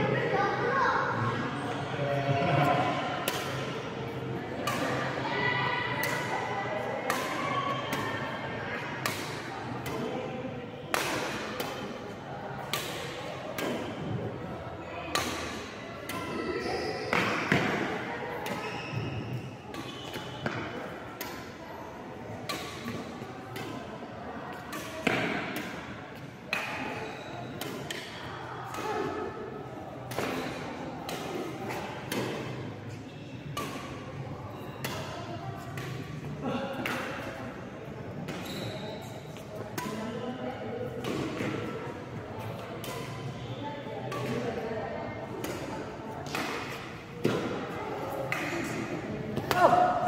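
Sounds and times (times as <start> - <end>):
racket hitting shuttlecock: 3.2 - 3.7, 4.6 - 5.2, 6.0 - 6.4, 7.0 - 8.3, 9.0 - 10.1, 10.9 - 11.9, 12.6 - 14.1, 15.1 - 16.4, 17.1 - 21.6, 22.4 - 23.8, 24.5 - 37.4, 39.1 - 40.2, 40.9 - 41.8, 42.6 - 43.2, 44.0 - 44.6, 45.3 - 50.0.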